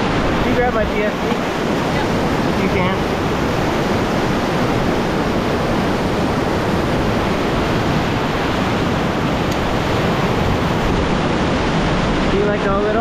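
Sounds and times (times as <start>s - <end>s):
river rapids rushing: 0.0s - 13.0s.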